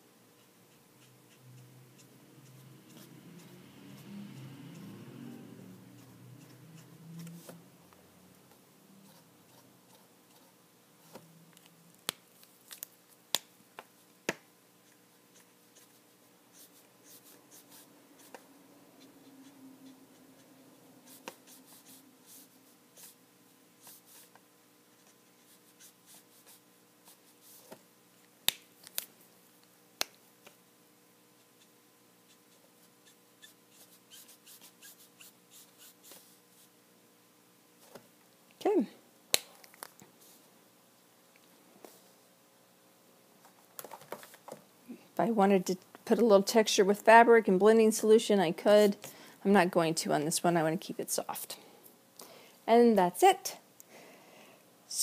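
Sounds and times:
marker nib scratching paper: 0.4 - 7.6, 9.0 - 11.3, 14.8 - 23.2, 25.0 - 27.8, 31.4 - 36.7.

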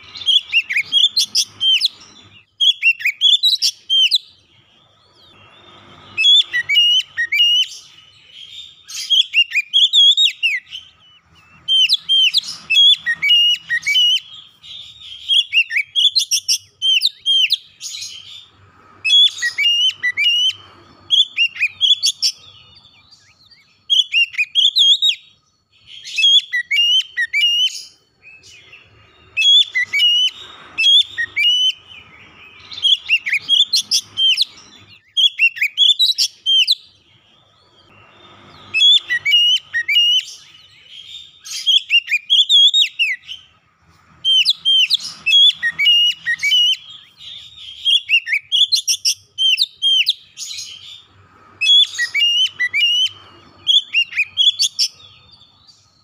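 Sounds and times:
bird singing whistled notes: 0.0 - 56.0.

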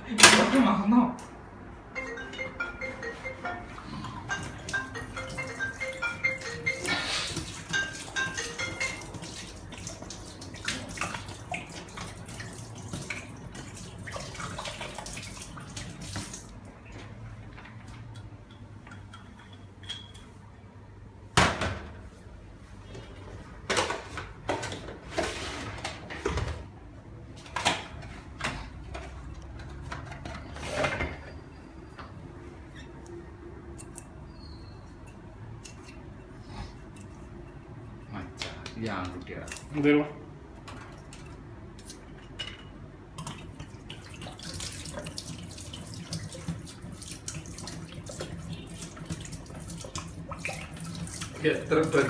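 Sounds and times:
glass bottles clinking: 3.5 - 9.2.

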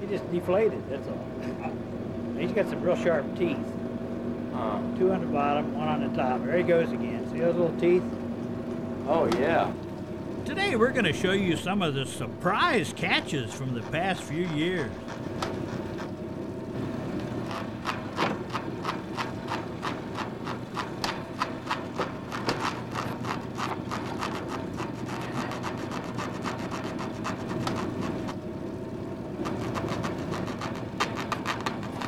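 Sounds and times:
steady low hum: 10.4 - 15.4.

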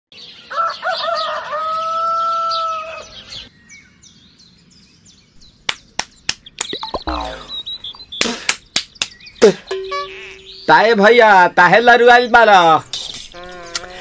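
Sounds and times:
small birds chirping: 0.2 - 14.0
rooster crowing: 0.5 - 3.1.

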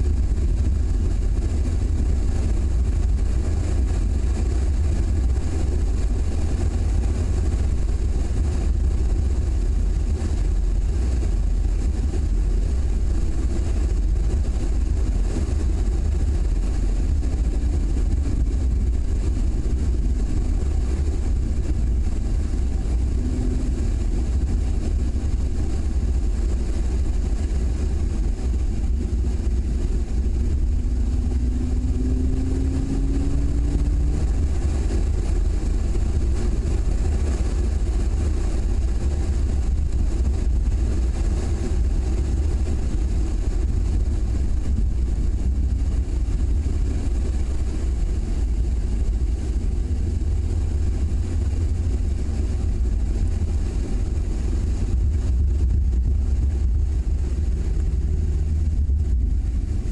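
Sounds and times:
car engine: 0.0 - 59.9
wind rumble on microphone: 0.0 - 59.9.

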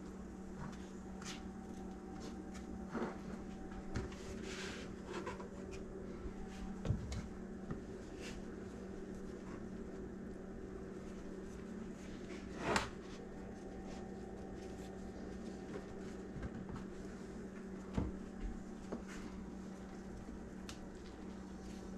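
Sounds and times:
steady low hum: 0.0 - 21.9
tortilla rustling: 7.4 - 17.9, 18.6 - 21.9.

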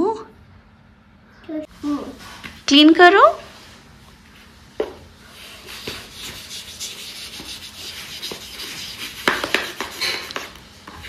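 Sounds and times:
chalkboard being wiped: 5.2 - 11.0.

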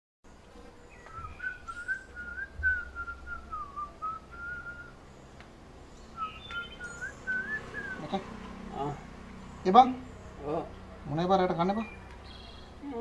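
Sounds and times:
man whistling a tune: 1.1 - 5.0
dull low thump: 2.3 - 3.1.

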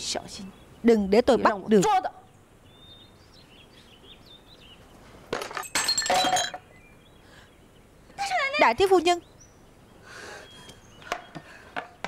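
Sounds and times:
crockery smashing: 5.3 - 6.7.

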